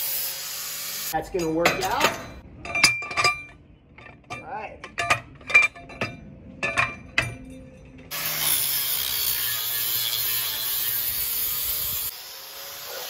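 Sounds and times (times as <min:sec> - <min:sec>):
metal clinks: 0:01.3 - 0:08.1
angle grinder grinding steel: 0:08.1 - 0:13.0.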